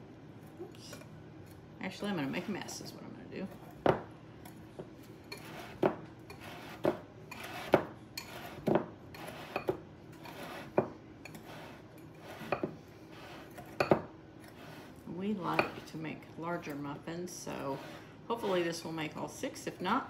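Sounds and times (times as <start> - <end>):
whisk scraping in bowl: 2.0 - 3.0, 5.3 - 19.9.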